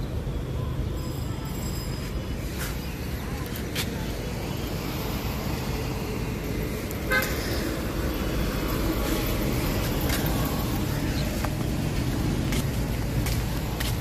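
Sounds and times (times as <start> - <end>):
road traffic noise: 0.0 - 14.0
vehicle horn toot: 7.1 - 7.4.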